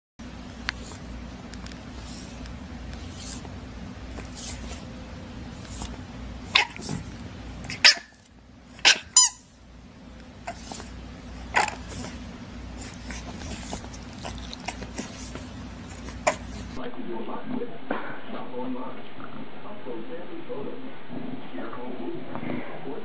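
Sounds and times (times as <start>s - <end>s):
puppies yipping and barking: 6.5s - 7.0s, 7.6s - 8.2s, 8.8s - 9.6s.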